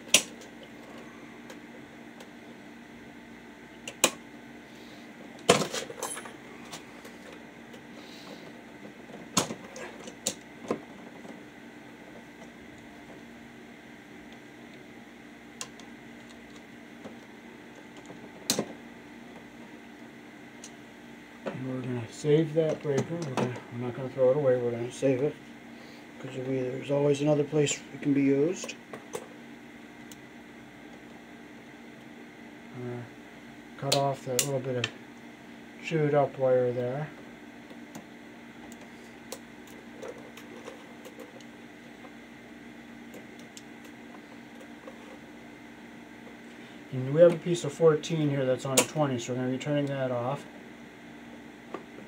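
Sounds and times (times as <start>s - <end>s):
steady hum: 0.0s - 52.0s.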